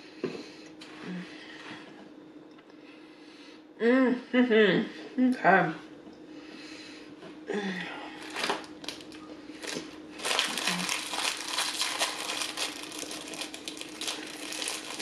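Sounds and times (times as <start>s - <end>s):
plastic wrapper crinkling: 8.2s - 15.0s.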